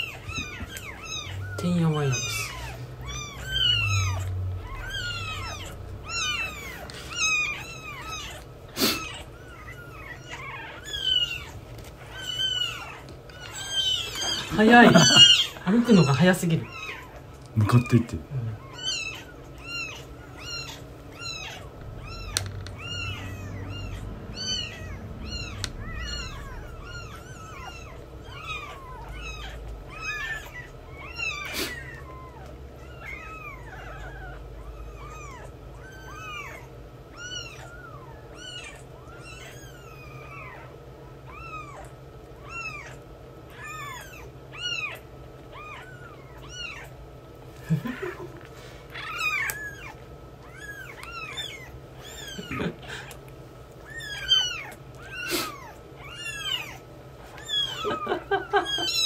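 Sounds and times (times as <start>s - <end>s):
kittens mewing: 0.0s - 59.0s.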